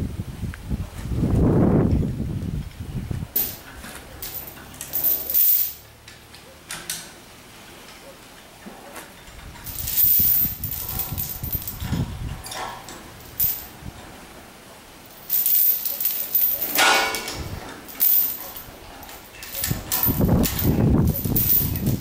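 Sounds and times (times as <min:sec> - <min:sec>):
chain rattling over concrete: 0:03.3 - 0:05.8, 0:08.6 - 0:14.2, 0:15.1 - 0:22.0.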